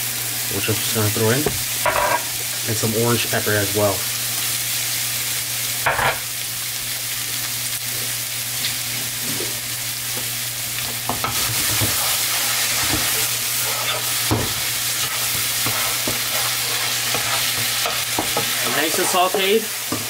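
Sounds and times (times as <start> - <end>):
vegetables sizzling in oil: 0.0 - 20.0
spatula scraping and tapping pan: 10.8 - 20.0.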